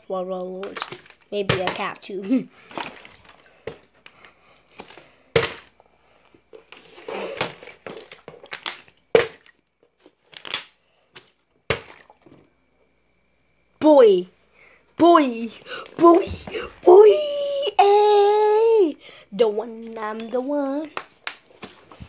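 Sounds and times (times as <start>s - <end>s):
plastic crinkling: 6.5s - 10.8s.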